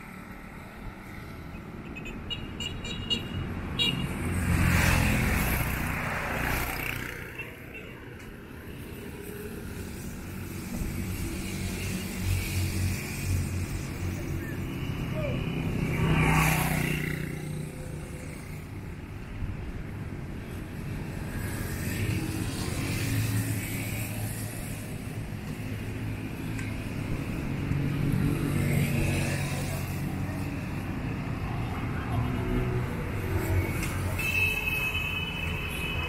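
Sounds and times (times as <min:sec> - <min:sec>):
traffic hum: 0:00.0 - 0:36.0
motorcycle and car engines passing: 0:04.1 - 0:07.6, 0:10.6 - 0:19.2, 0:20.8 - 0:34.1.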